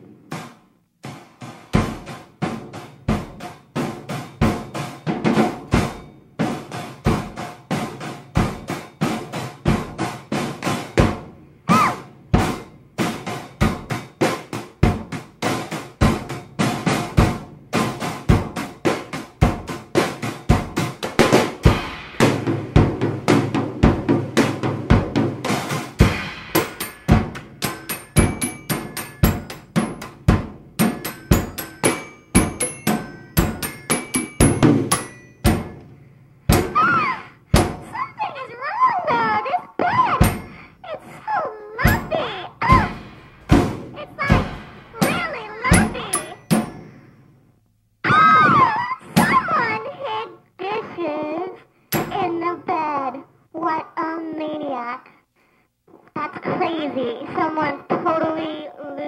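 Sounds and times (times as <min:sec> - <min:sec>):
snare and bass drum hits: 0:00.2 - 0:35.8, 0:36.5 - 0:36.9, 0:37.5 - 0:37.9, 0:41.9 - 0:46.8.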